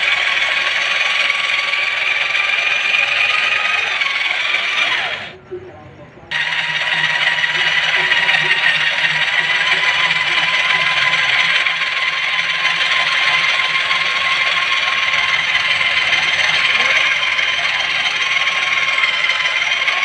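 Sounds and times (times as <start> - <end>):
electric drill whining: 0.0 - 5.4, 6.3 - 20.0.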